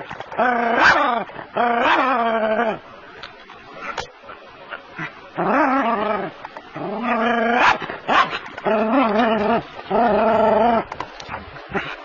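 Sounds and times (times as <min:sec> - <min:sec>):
dog barking: 0:07.6 - 0:08.4.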